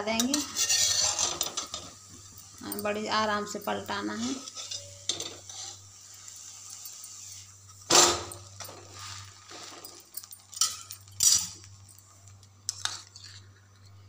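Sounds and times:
metal spatula scraping griddle: 0.2s - 2.0s, 4.1s - 11.6s.

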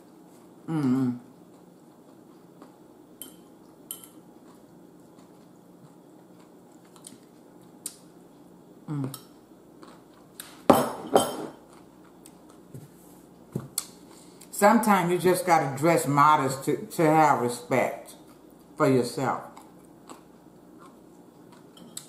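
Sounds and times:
dishes clattering: 10.7s - 11.6s
fork and bowl clinking on dishes: 21.7s - 22.0s.

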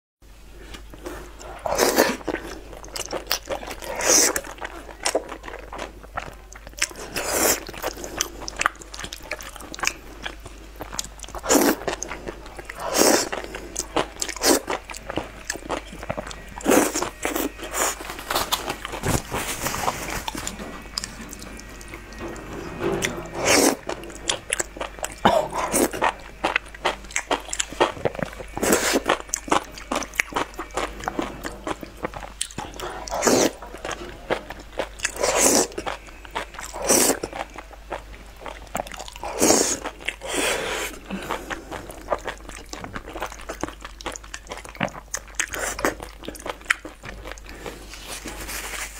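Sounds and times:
wet chewing: 0.7s - 48.2s
noodles slurping: 6.8s - 43.7s.

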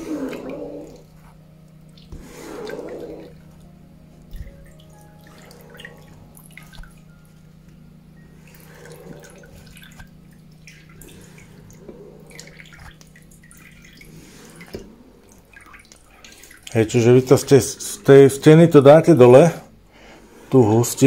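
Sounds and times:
liquid sloshing and dripping: 0.0s - 18.2s
wooden spoon scraping cloth: 2.1s - 3.3s.

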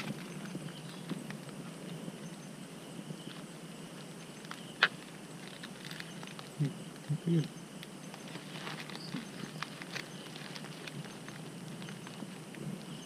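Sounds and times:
insect drone: 0.0s - 13.0s
plastic bag rustling: 5.4s - 6.5s, 8.1s - 12.5s.

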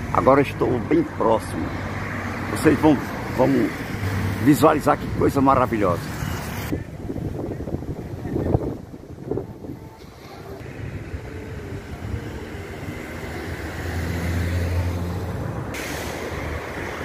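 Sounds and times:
rumble of passing vehicles: 0.0s - 17.0s
engine drone passing by: 10.0s - 17.0s.

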